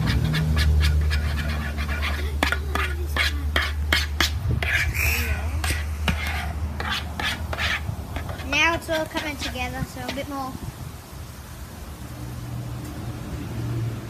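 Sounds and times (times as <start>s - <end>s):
steady low hum: 0.0s - 8.5s
spoon scraping plastic bowl: 0.0s - 10.3s.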